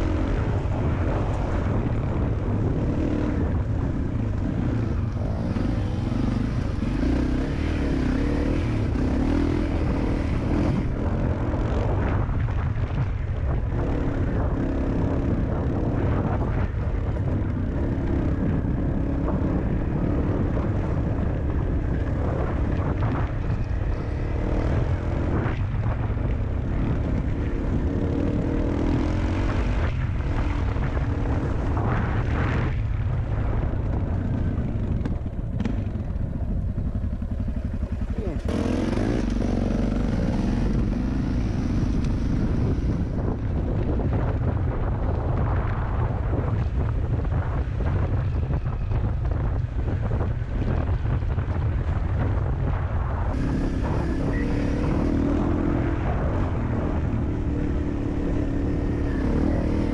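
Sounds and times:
motorcycle engine under load: 33.1s - 44.1s.

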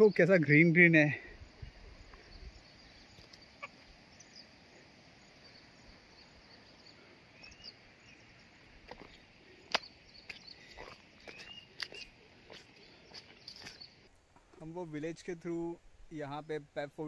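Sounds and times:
bird chirps: 1.4s - 14.1s
faint high hiss: 12.0s - 17.0s.

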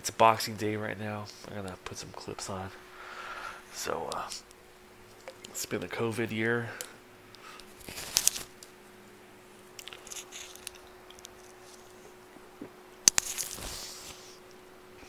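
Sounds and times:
faint steady hum: 0.0s - 15.0s
face mask rustling: 7.6s - 8.6s.

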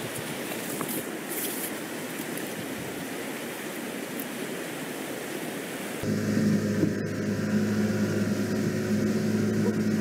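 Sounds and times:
stream water running over rocks: 0.0s - 6.0s.

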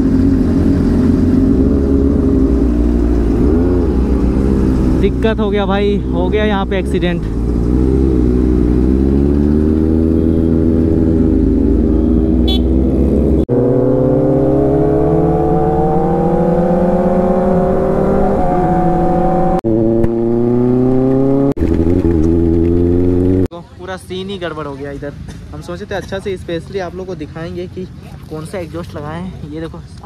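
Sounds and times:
motorcycle engine accelerating: 0.0s - 23.5s.

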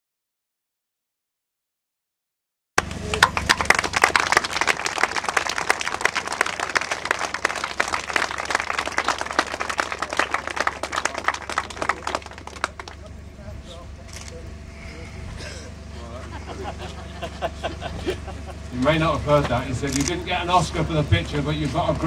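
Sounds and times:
crowd applauding: 2.8s - 13.2s
low steady rumble: 2.8s - 22.0s.

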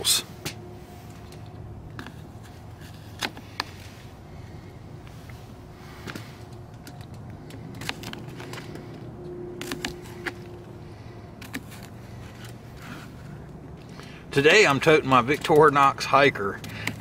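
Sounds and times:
low background rumble: 0.0s - 15.6s.

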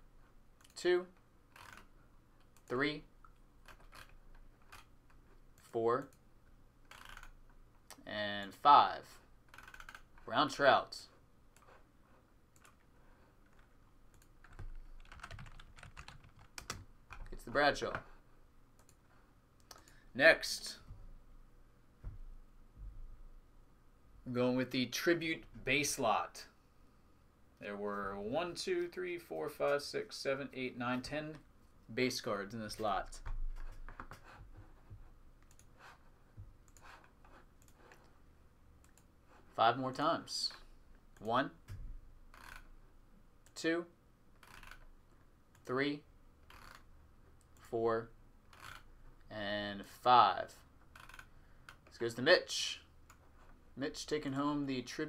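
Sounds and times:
computer keyboard typing: 1.6s - 2.7s, 3.6s - 4.9s, 6.9s - 7.4s, 9.5s - 10.2s, 13.5s - 17.3s, 35.4s - 35.7s, 44.4s - 44.9s, 51.0s - 51.8s.

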